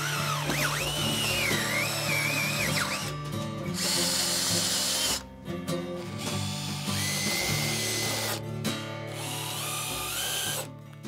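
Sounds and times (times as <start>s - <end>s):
drill boring into metal: 0.0s - 3.1s, 3.7s - 5.2s, 6.2s - 8.4s, 9.1s - 10.7s
background music: 0.0s - 11.0s.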